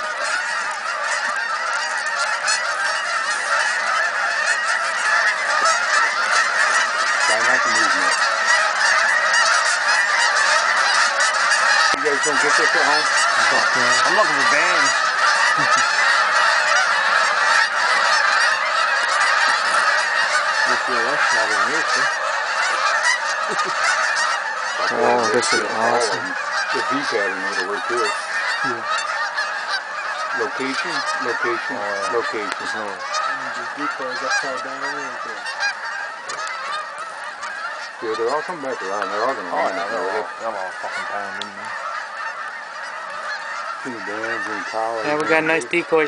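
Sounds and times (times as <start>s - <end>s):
geese honking: 0.0s - 46.0s.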